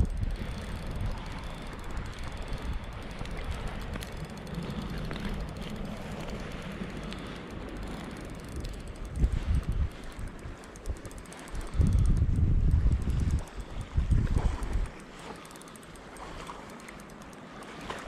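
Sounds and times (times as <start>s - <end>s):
wind rumbling on microphone: 0.0s - 15.3s
fishing reel ticking: 0.0s - 18.0s.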